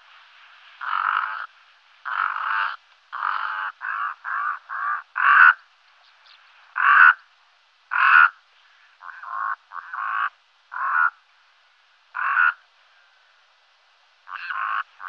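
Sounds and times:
raven calling: 0:00.8 - 0:07.3, 0:07.9 - 0:11.2, 0:12.1 - 0:13.2, 0:14.2 - 0:15.0.

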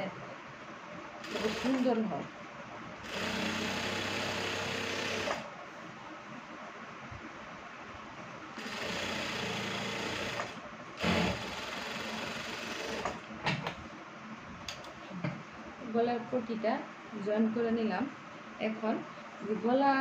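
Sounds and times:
sewing machine stitching: 0:01.2 - 0:01.9, 0:03.0 - 0:05.4, 0:08.6 - 0:13.2.

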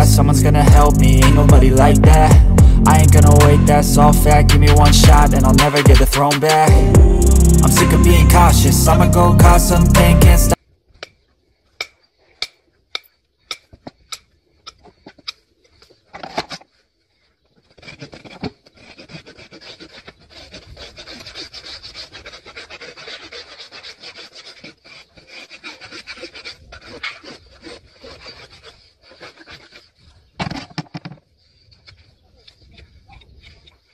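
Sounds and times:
rasp scraping hoof: 0:00.0 - 0:10.3, 0:11.0 - 0:33.9
hand tool clicking on hoof: 0:11.8 - 0:15.4.

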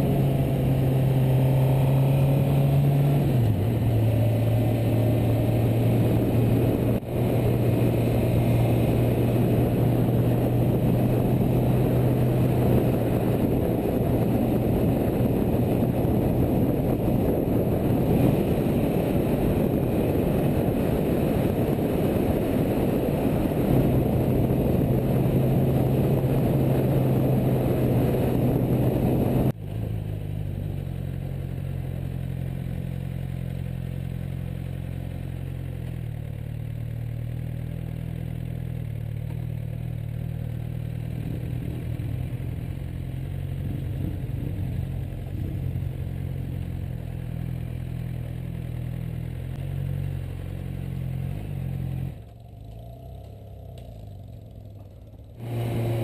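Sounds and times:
wind rush: 0:00.0 - 0:29.6, 0:43.3 - 0:46.1
motorcycle engine: 0:00.0 - 0:56.0.

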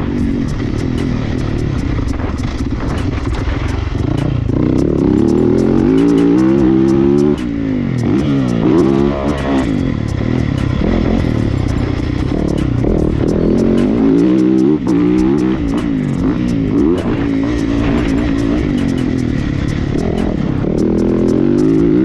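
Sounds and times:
background music: 0:00.0 - 0:22.0
motocross bike engine revving: 0:00.0 - 0:22.0.

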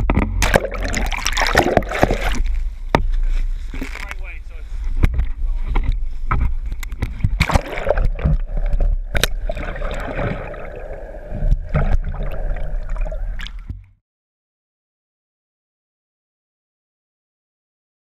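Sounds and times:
sharp knocks and splashes: 0:00.0 - 0:13.8
water gurgling underwater: 0:00.1 - 0:02.6, 0:07.0 - 0:13.9.

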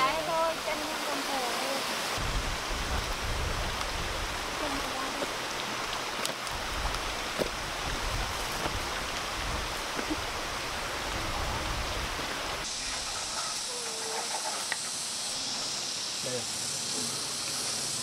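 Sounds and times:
rushing outdoor noise: 0:00.0 - 0:18.0
thin high hiss: 0:12.0 - 0:18.0.

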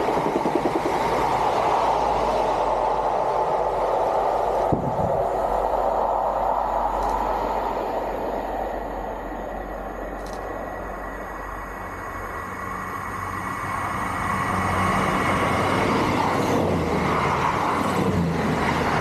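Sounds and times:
train passing at speed: 0:00.0 - 0:19.0.

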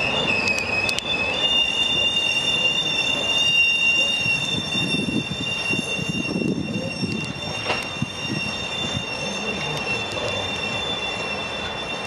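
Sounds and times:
train rumble: 0:00.0 - 0:12.0
train wheel squeal: 0:00.0 - 0:12.0
sharp rail clicks: 0:07.0 - 0:08.0.

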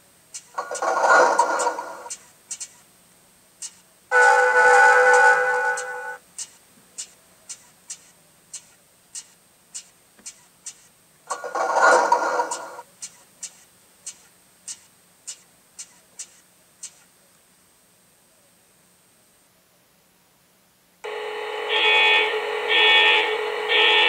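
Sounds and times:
loud noisy burst: 0:04.1 - 0:06.2, 0:21.0 - 0:24.0
model locomotive clicks: 0:05.8 - 0:11.5.

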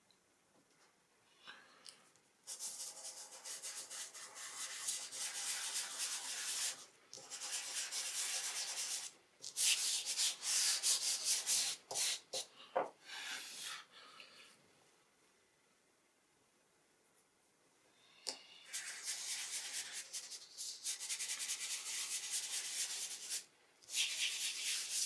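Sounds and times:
pastel stick scratching on paper: 0:02.5 - 0:12.5, 0:18.7 - 0:25.0.

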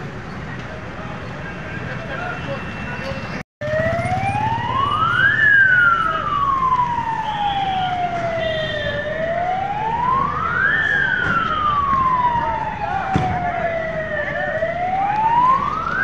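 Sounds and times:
fire engine siren wailing: 0:03.6 - 0:16.0.

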